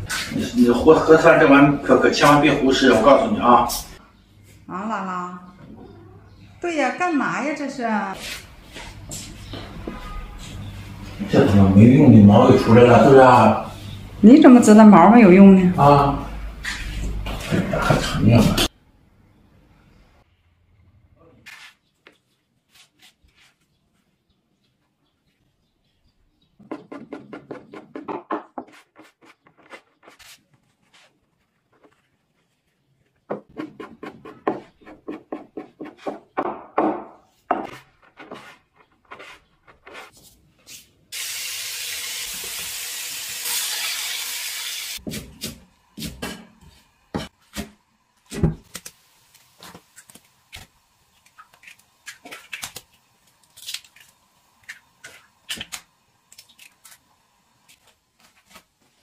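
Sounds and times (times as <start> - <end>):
stir-frying sizzle in a wok: 41.2 - 45.3.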